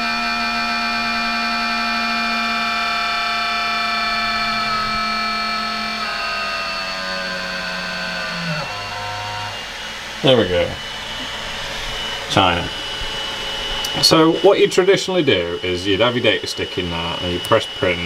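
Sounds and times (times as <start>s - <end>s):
printer motor whine: 0.0s - 18.0s.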